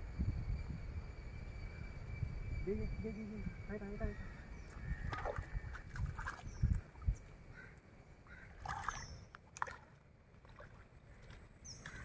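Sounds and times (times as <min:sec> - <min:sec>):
pond water sloshing and splashing: 0:05.0 - 0:07.4, 0:08.4 - 0:12.0.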